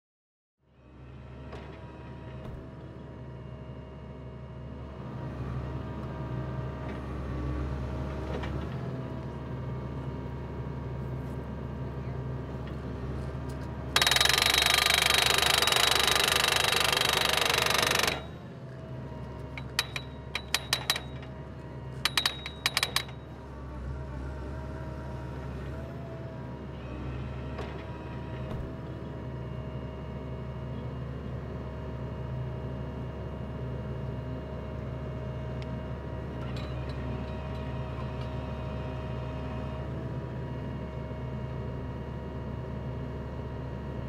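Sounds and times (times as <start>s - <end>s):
drill rig engine running: 11.8s - 25.5s.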